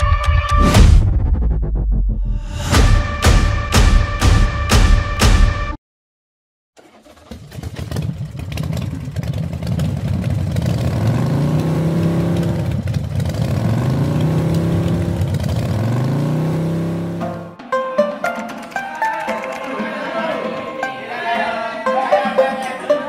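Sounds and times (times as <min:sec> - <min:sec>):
small motorcycle engine accelerating: 0:06.8 - 0:17.3.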